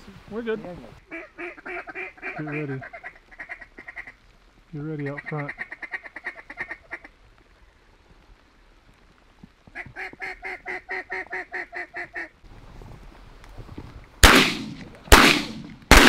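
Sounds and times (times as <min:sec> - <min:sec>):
duck call quacks: 0:01.1 - 0:04.2, 0:05.2 - 0:07.1
low wind rumble: 0:12.3 - 0:16.0.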